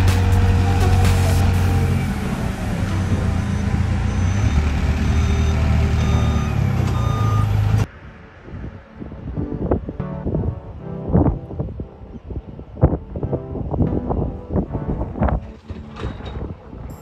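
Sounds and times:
forklift engine running: 0:00.0 - 0:07.9
reversing alarm beeps: 0:03.3 - 0:07.9.

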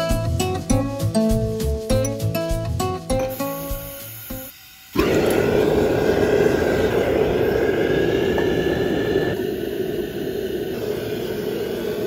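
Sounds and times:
gas forge burner roaring: 0:04.9 - 0:12.0.

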